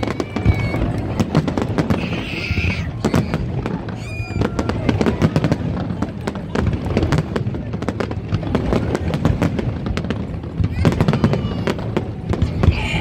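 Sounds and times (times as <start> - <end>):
fireworks popping and crackling: 0.0 - 13.0.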